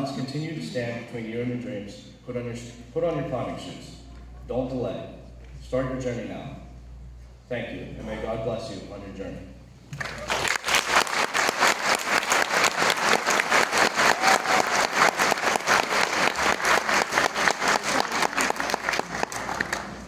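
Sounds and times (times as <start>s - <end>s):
audience applauding: 10.0s - 20.0s
individual claps close by: 10.0s - 20.0s.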